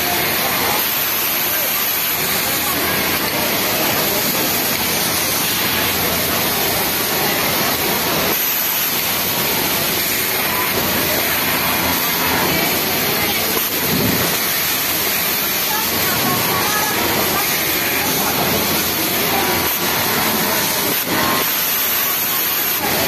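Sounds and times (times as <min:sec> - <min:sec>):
industrial sewing machines running: 0:00.0 - 0:23.0.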